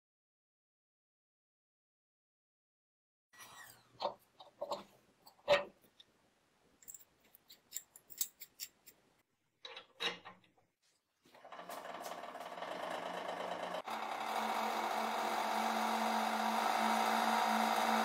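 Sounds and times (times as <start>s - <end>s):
hydraulic pump humming: 11.4s - 18.0s.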